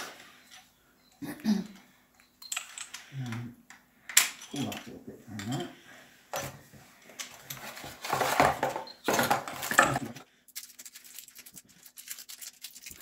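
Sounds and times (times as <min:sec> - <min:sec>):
cardboard packaging rustling: 0:07.3 - 0:13.0.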